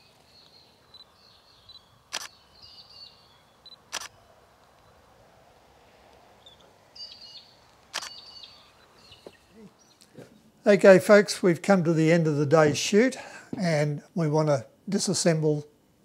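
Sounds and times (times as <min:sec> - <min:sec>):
birds chirping: 0:00.0 - 0:05.2, 0:06.3 - 0:10.6
camera shutter firing: 0:02.1 - 0:02.4, 0:03.9 - 0:04.2, 0:07.9 - 0:08.2.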